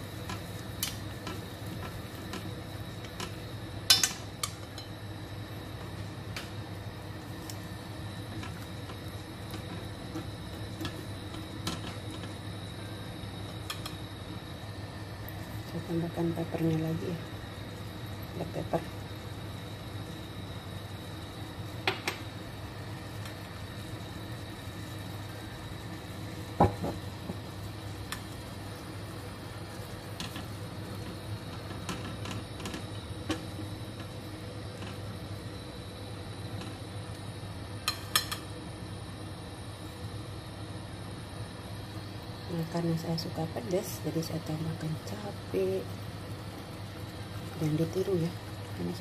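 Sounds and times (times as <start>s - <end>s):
steady low hum: 0.0s - 49.0s
tongs clicking against a pan: 0.2s - 5.0s, 13.6s - 14.0s, 37.8s - 38.5s
tongs clicking on metal pan: 3.1s - 5.0s, 37.8s - 38.5s.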